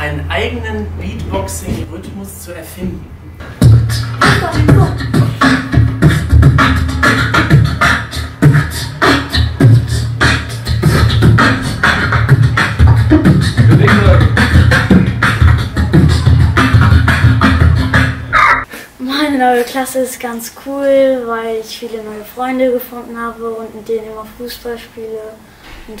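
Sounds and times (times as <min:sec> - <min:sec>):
boy beatboxing into microphone: 0:02.9 - 0:18.7.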